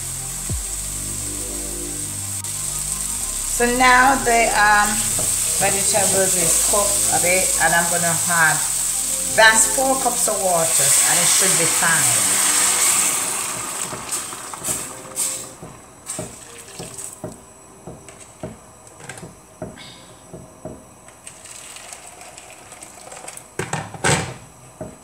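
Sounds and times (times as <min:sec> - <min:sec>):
vegetables frying: 0:00.0 - 0:17.4, 0:21.1 - 0:23.6
water splashing into frying pan: 0:04.6 - 0:17.2, 0:21.2 - 0:23.6.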